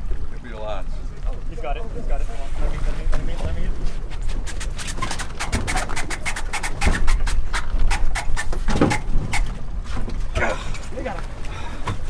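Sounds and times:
men panting and straining: 10.2s - 12.0s.

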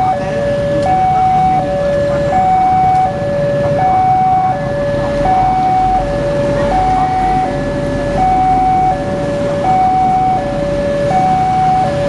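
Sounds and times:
train rumbling past: 0.0s - 12.0s.

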